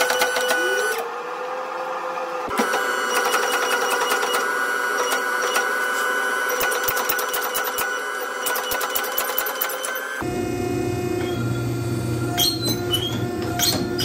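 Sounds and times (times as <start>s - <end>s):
hydraulic press pump drone: 0.0s - 14.0s.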